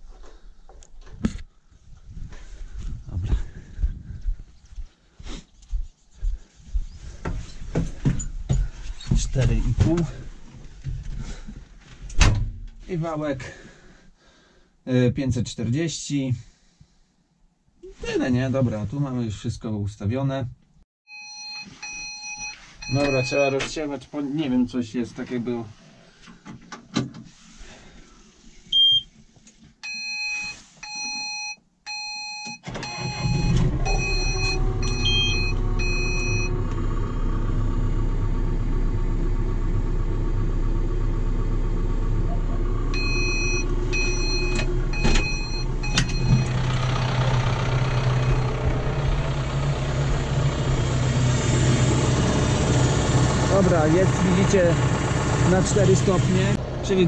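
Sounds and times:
electronic warning beeps: 0:21.1 - 0:23.6, 0:28.7 - 0:29.1, 0:29.8 - 0:36.5, 0:43.0 - 0:46.5
tractor diesel engine running: 0:32.6 - 0:57.0.

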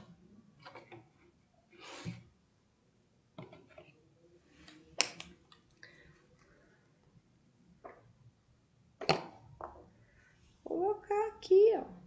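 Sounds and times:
paint pots clicking and tapping: 0:00.0 - 0:01.4, 0:03.3 - 0:06.6, 0:07.7 - 0:08.3, 0:09.0 - 0:10.1.

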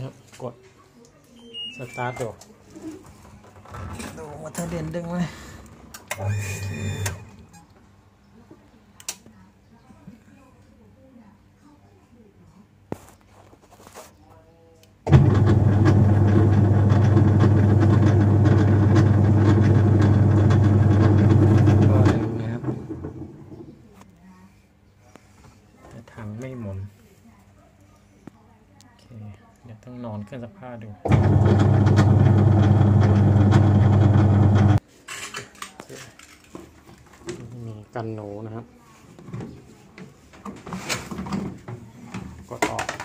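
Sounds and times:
washing machine motor humming: 0:15.1 - 0:23.8, 0:31.0 - 0:34.8.

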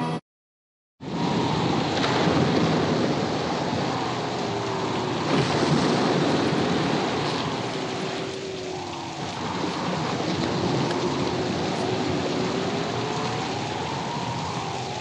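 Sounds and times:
waves breaking: 0:01.0 - 0:15.0
wind: 0:01.0 - 0:15.0
faint drawn-out tone: 0:03.6 - 0:15.0.

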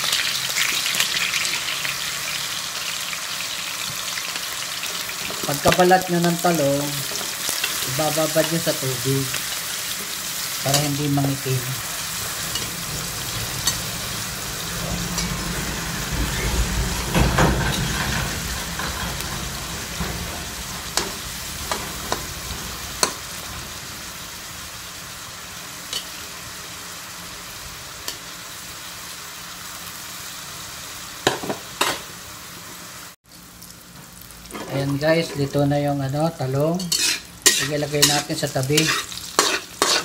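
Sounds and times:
vegetables sizzling in oil: 0:00.0 - 0:40.0
metal spatula scraping wok: 0:04.8 - 0:24.4, 0:34.5 - 0:40.0.

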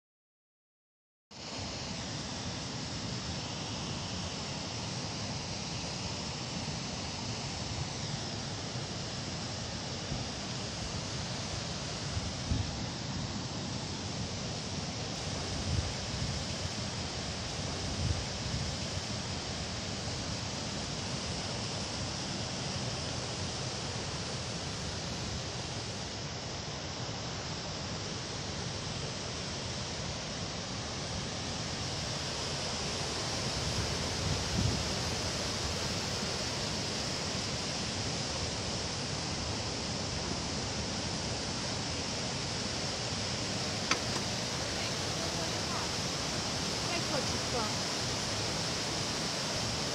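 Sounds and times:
floodwater rushing: 0:41.5 - 0:49.9.

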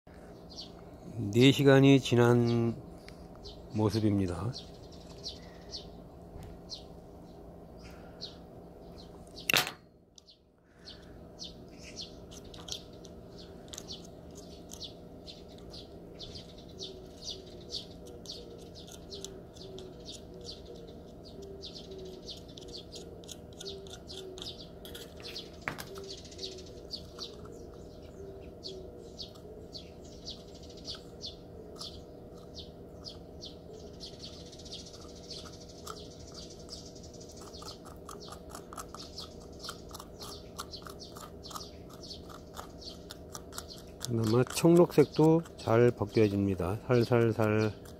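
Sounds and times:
small birds chirping: 0:00.1 - 0:47.9.

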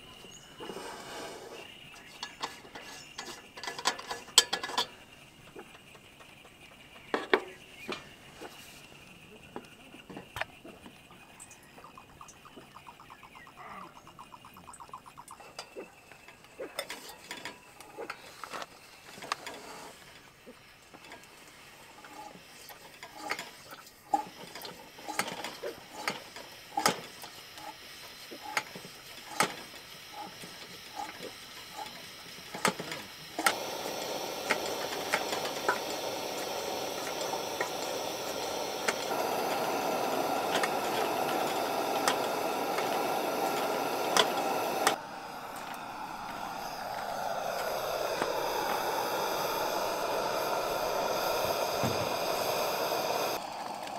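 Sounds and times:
clicks of objects being handled: 0:02.0 - 0:05.0
steady rushing noise: 0:36.1 - 0:53.9.

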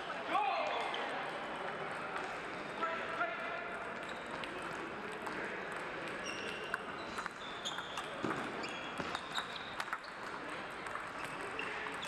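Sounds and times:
murmur of sports hall: 0:00.0 - 0:12.0
table tennis balls ticking: 0:03.8 - 0:12.0.

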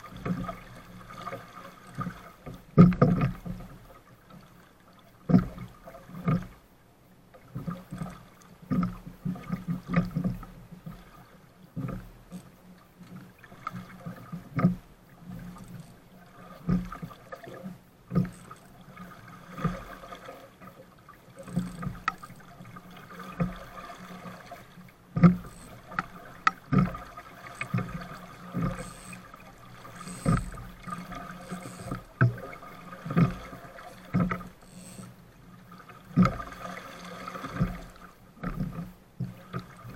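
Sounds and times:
knocks and thumps on boat: 0:00.0 - 0:03.8, 0:05.2 - 0:06.6, 0:11.8 - 0:16.0, 0:20.6 - 0:34.6, 0:36.1 - 0:36.6, 0:37.4 - 0:39.9
waves slapping against hull: 0:00.0 - 0:06.7, 0:07.3 - 0:39.9.

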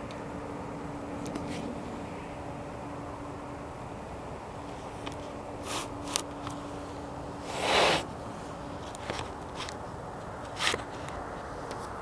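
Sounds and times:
low humming drone: 0:00.0 - 0:12.0
rustling scrapes: 0:07.4 - 0:08.1.

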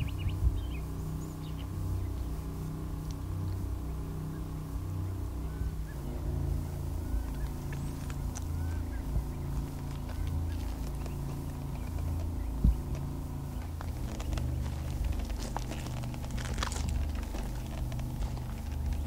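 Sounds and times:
wind rumble on microphone: 0:00.0 - 0:19.0
faint rustling: 0:05.1 - 0:19.0.

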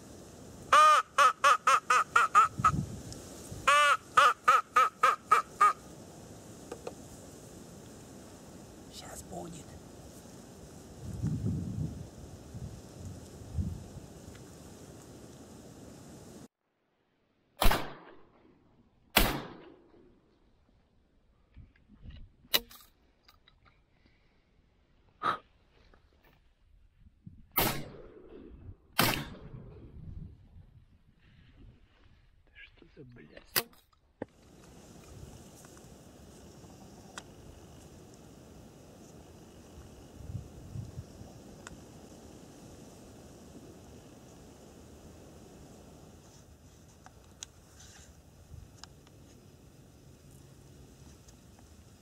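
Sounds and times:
shotgun shots with echo: 0:17.6 - 0:18.1, 0:19.2 - 0:19.6, 0:27.6 - 0:28.1, 0:29.0 - 0:29.5.

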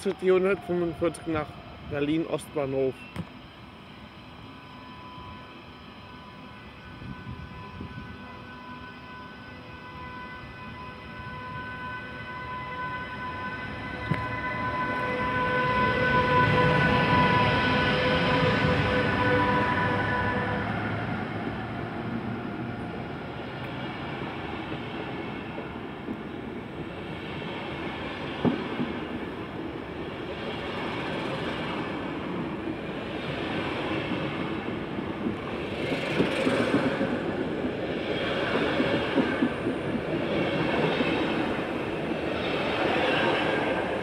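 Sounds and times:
train wheels rumbling on rails: 0:12.9 - 0:44.0.

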